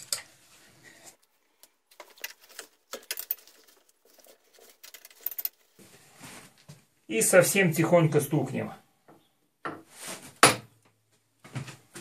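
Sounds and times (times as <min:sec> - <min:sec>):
spanner clicking and scraping on bolts: 0:01.6 - 0:05.8.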